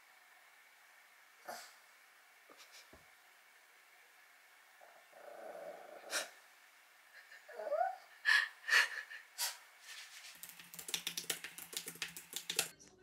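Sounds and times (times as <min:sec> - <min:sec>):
small dog growling: 0:04.8 - 0:06.4, 0:07.4 - 0:08.1
dog whining: 0:07.4 - 0:08.1
keyboard typing: 0:10.3 - 0:12.7.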